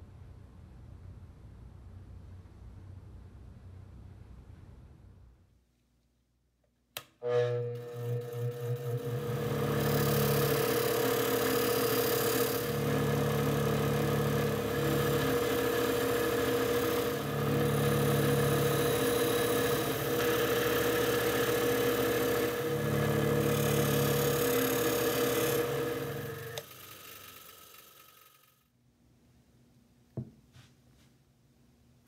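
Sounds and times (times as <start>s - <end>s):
wire wheel scratching metal: 7.2s - 13.2s
bench grinder motor humming: 7.2s - 28.6s.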